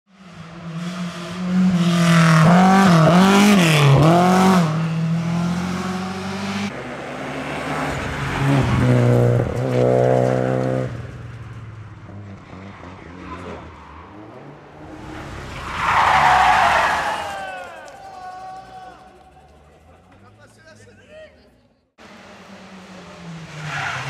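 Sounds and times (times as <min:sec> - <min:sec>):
rally car engine at high revs: 0:00.1 - 0:11.2
rally car approaching: 0:00.1 - 0:24.0.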